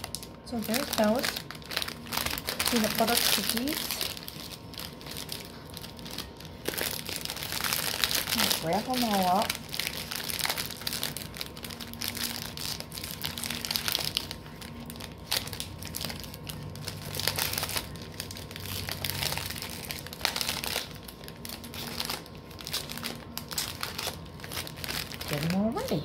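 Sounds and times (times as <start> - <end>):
plastic wrapping crinkling: 0.0 - 26.0.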